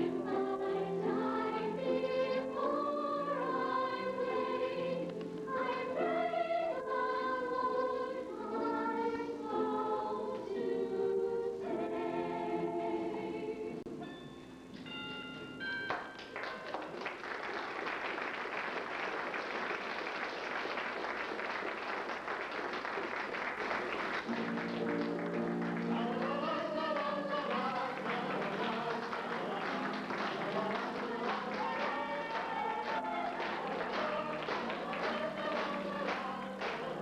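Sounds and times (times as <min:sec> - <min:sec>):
piano and keyboard music: 0:00.0 - 0:17.0, 0:21.1 - 0:37.0
audience applauding: 0:15.9 - 0:37.0.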